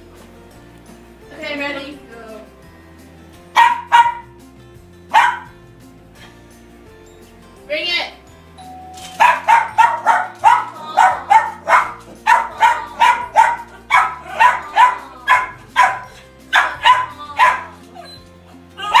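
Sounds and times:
background music: 0.0 - 19.0
small dog barking rapidly: 3.6 - 4.3, 5.1 - 5.5, 9.2 - 18.1, 18.8 - 19.0.

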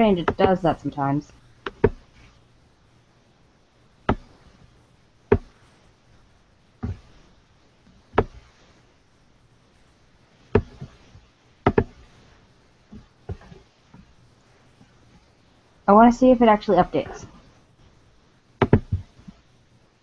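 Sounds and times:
laptop clicks and taps: 0.2 - 0.6, 1.6 - 2.0, 5.3 - 5.6, 11.6 - 12.0, 18.6 - 19.4.

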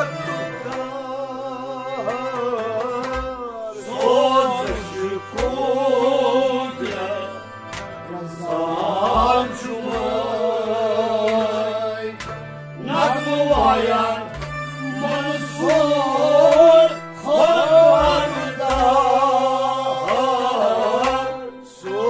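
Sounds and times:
man singing slow melody: 0.0 - 7.5
harmonium drone chords: 0.0 - 22.0.

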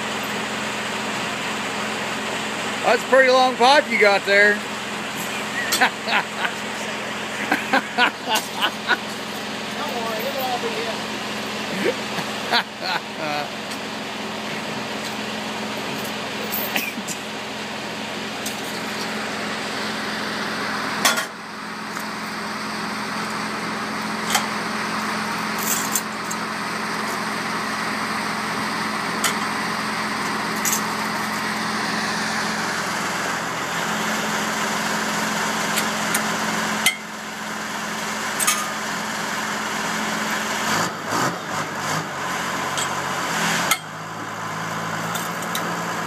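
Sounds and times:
diesel engine idling: 0.0 - 46.0
log chains clanking: 5.1 - 12.4, 14.9 - 17.1, 24.2 - 26.5, 45.0 - 45.8.

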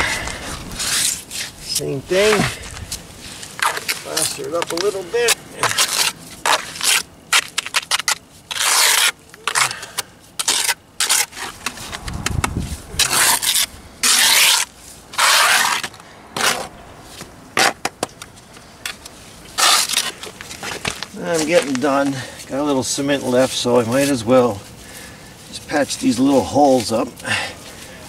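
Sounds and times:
trowel scraping plaster on stone: 0.8 - 1.5, 5.6 - 12.0, 13.0 - 16.7.

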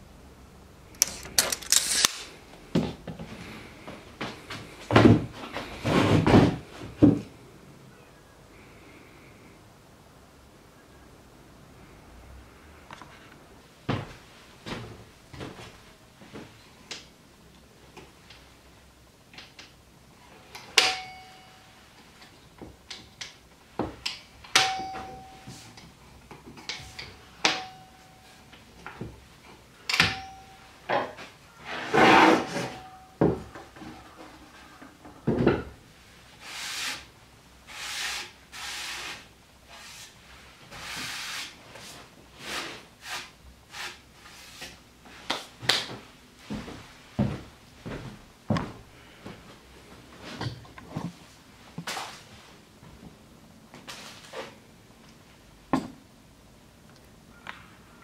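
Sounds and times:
table leg hinges clicking: 1.0 - 2.2
short metallic ring: 20.8 - 21.8, 24.6 - 25.7, 26.9 - 28.4, 29.9 - 30.8
table rubbing and sliding: 31.6 - 32.9.

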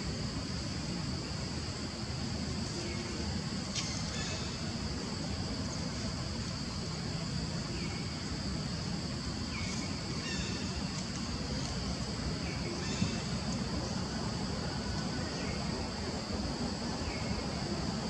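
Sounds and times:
high-pitched insect drone: 0.0 - 18.0
short insect chirps: 9.5 - 11.8.

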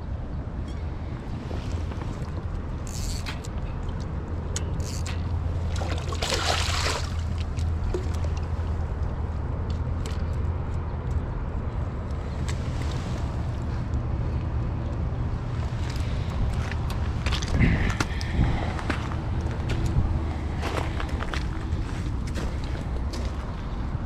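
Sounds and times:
wet splashing: 5.7 - 8.2
low wind rumble on microphone: 7.0 - 24.0.

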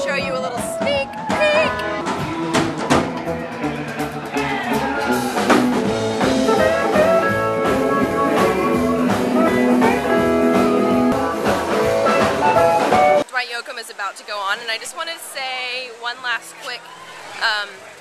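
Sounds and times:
electric guitar: 0.0 - 13.2
upright bass: 0.0 - 13.2
drum kit beat: 0.0 - 13.3.

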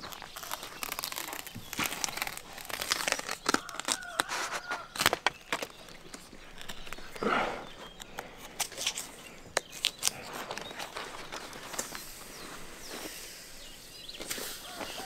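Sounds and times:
bark splitting cracks: 0.0 - 12.0
knife tearing bark: 0.0 - 12.2
bark strips rustling: 0.0 - 15.0.

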